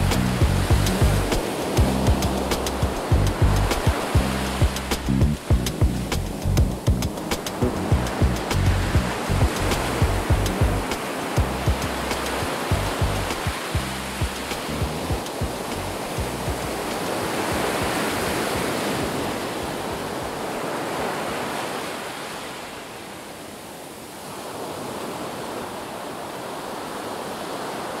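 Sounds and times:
low thumps: 0.0s - 16.8s
surf breaking on sand: 0.0s - 23.0s.

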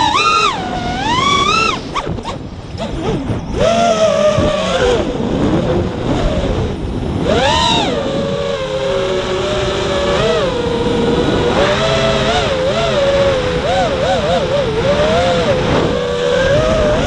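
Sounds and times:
model airplane motor: 0.0s - 17.0s
wind rushing: 0.0s - 17.0s.

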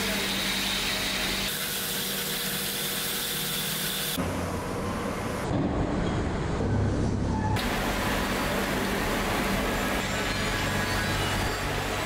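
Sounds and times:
band saw cutting steel: 0.0s - 4.2s.

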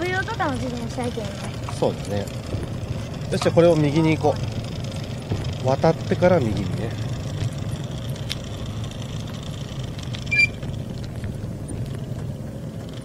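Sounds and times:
bicycles rolling on road: 0.0s - 13.0s
high squeak: 10.3s - 10.6s.

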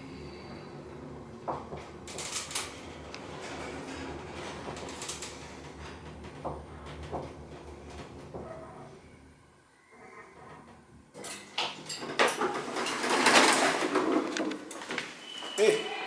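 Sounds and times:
elevator humming: 0.0s - 12.8s.

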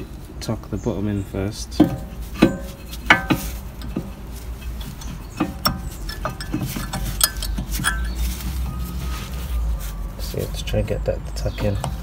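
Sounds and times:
metal parts clinking: 1.9s - 9.1s.

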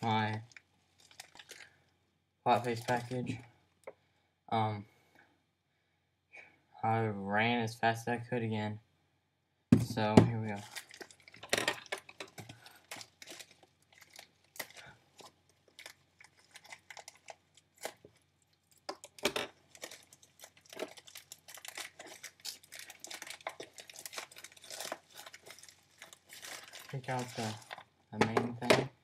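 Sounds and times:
package wrapping tearing and rustling: 0.0s - 1.8s, 2.5s - 3.3s, 10.5s - 27.9s.

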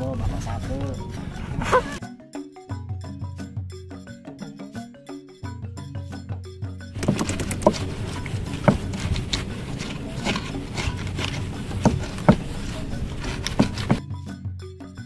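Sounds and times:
knocks and scraping: 0.0s - 2.0s, 6.9s - 14.0s
background music: 0.0s - 15.0s
steady rushing noise: 7.0s - 14.0s.

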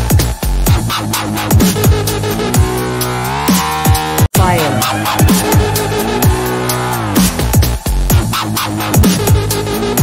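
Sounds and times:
electronic music with steady beat: 1.6s - 8.4s.

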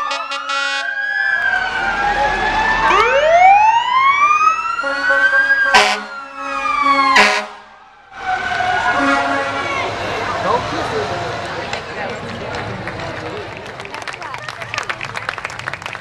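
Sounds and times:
loud horn blasts: 0.0s - 0.9s, 4.8s - 10.0s
sirens wailing: 0.0s - 13.6s.

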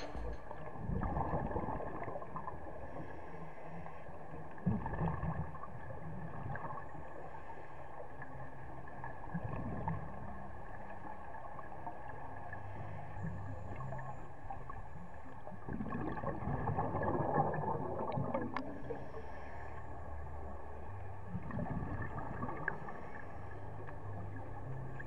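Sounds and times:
faint high hum: 0.0s - 1.3s
bubbles gurgling: 0.0s - 2.6s, 13.3s - 19.0s, 21.2s - 25.0s.

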